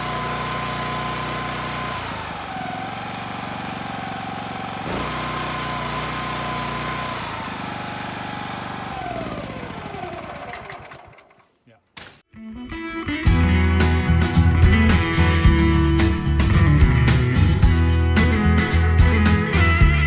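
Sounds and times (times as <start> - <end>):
petrol engine running pump: 0.0 - 11.5.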